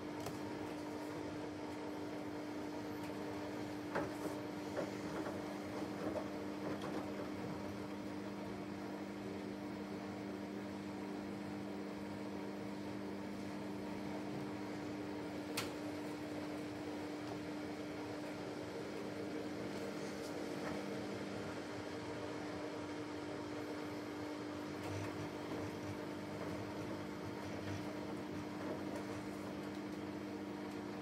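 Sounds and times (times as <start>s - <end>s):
washing machine spinning: 0.0s - 31.0s.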